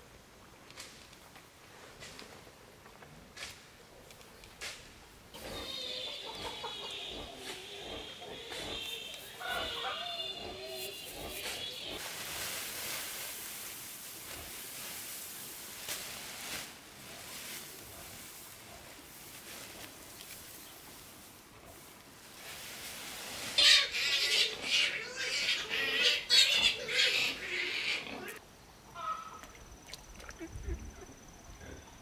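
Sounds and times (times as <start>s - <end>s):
geese calling: 5.4s - 12.0s
faint steady hiss: 10.2s - 25.0s.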